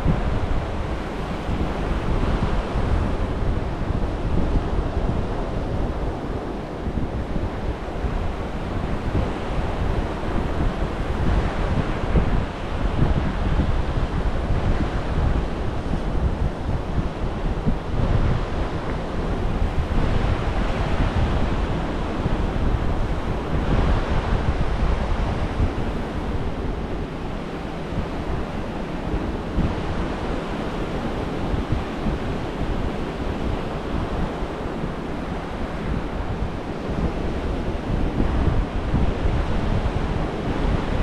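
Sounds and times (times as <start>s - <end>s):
surf washing up a beach: 0.0s - 41.0s
wind buffeting microphone: 0.0s - 41.0s.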